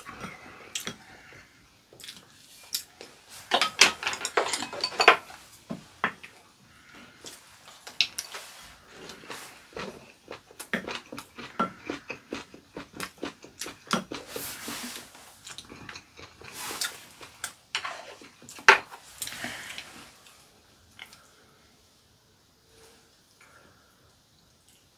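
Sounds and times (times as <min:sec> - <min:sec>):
people chewing and biting: 0:08.9 - 0:19.4.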